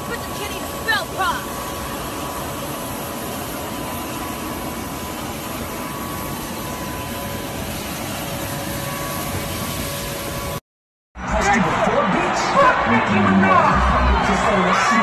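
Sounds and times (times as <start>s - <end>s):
jet engine whine and rumble: 0.0s - 10.6s.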